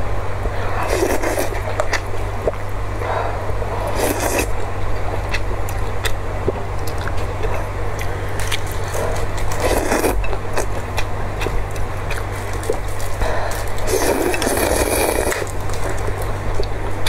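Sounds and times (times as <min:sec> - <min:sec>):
low hum: 0:00.0 - 0:17.0
person chewing: 0:00.4 - 0:17.0
person slurping noodles: 0:00.7 - 0:01.6, 0:03.0 - 0:04.5, 0:09.0 - 0:10.2, 0:13.2 - 0:15.5.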